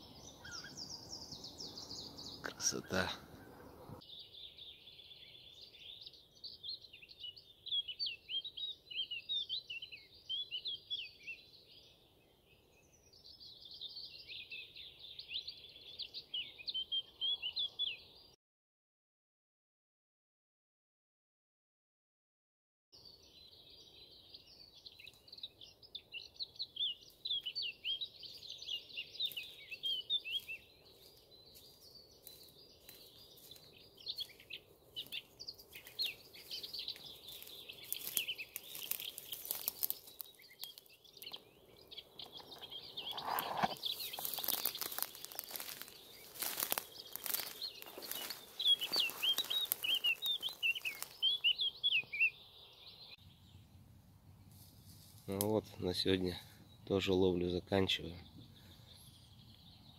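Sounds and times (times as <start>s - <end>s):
songbird warbling: 0.0s - 4.0s, 32.8s - 53.6s.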